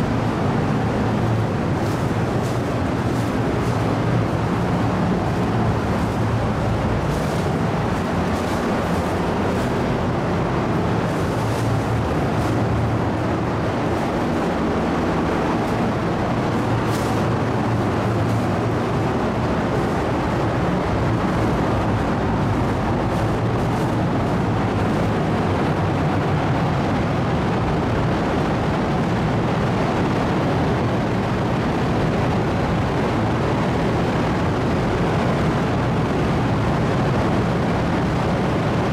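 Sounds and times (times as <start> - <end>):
low hum: 0.0 - 27.1
ship engines droning: 0.0 - 38.9.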